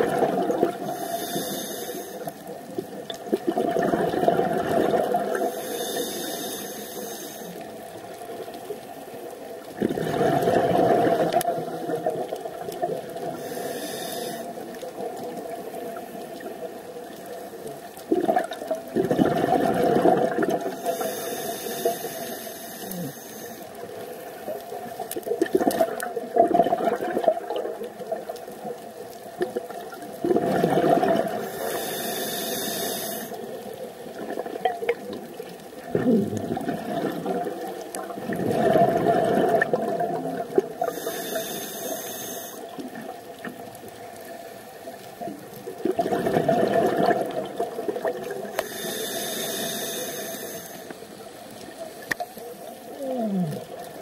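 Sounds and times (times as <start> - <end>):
hissing regulator inhales: 0.8 - 2.4, 5.4 - 7.6, 13.3 - 14.6, 20.7 - 24.3, 31.4 - 33.4, 40.8 - 42.7, 48.5 - 51.2.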